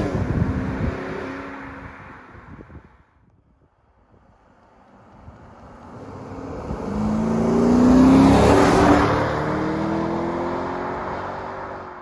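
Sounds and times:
car accelerating past: 5.0 - 12.0.

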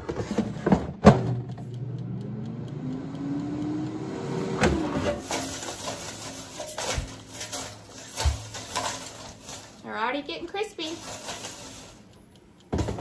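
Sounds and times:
air fryer humming: 0.1 - 13.0
basket knocking and rattling: 5.1 - 9.8, 10.9 - 12.0, 12.7 - 13.0.

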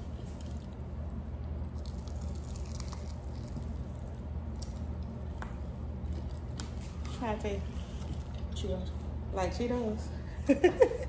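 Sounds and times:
food handled and chewed: 0.0 - 7.2
steady low hum: 0.0 - 11.0.

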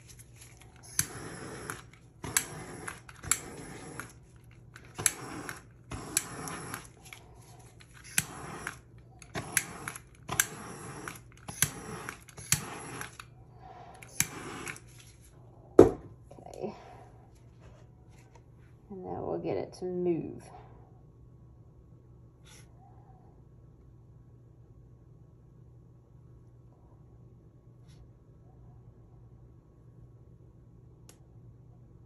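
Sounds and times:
torch flame hissing: 0.0 - 15.1
torch trigger click: 0.8 - 4.2, 4.8 - 6.9, 7.9 - 13.3, 14.0 - 14.8.

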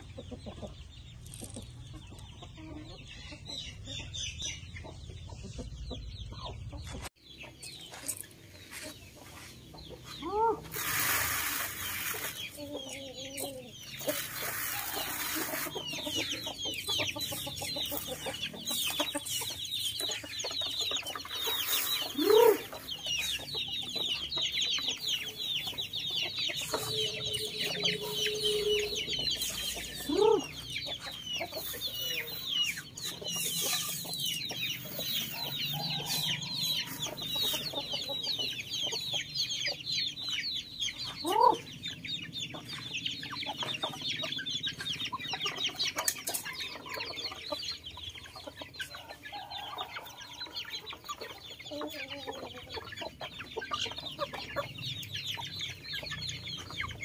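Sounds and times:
young chickens peeping: 0.0 - 57.0
loud short chicken calls: 21.6 - 22.9.

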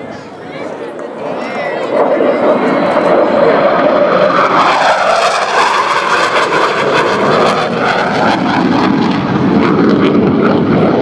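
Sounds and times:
jet engines in afterburner: 0.0 - 11.0.

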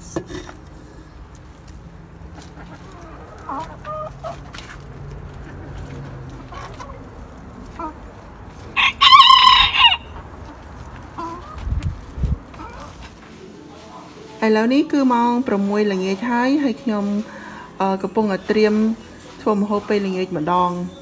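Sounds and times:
chickens clucking softly: 2.2 - 4.6, 5.4 - 8.2, 10.1 - 13.0
rooster crowing loudly: 8.8 - 10.2.

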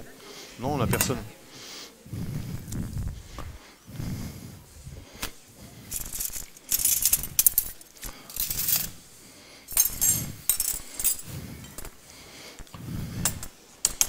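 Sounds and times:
dishes and cutlery clinking: 0.8 - 1.4, 9.7 - 11.9.

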